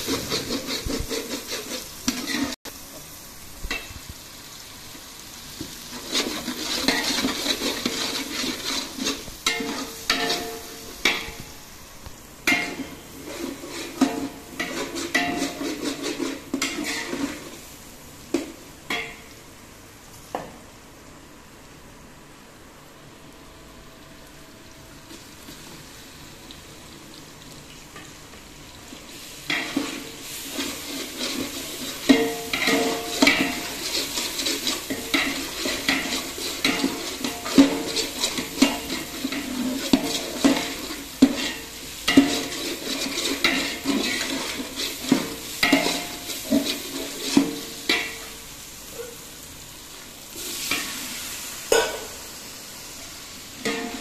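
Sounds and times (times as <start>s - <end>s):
metal spatula scraping a pot: 0.0s - 2.6s, 5.9s - 11.4s, 12.5s - 17.6s, 29.5s - 48.3s, 53.6s - 54.0s
onions sizzling in a pot: 0.0s - 54.0s.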